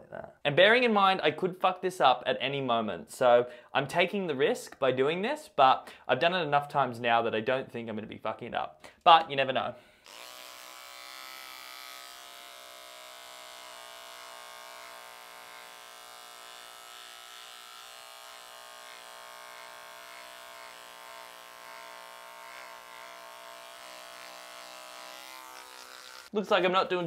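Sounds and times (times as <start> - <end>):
beard trimmer buzzing: 10.0 - 26.4.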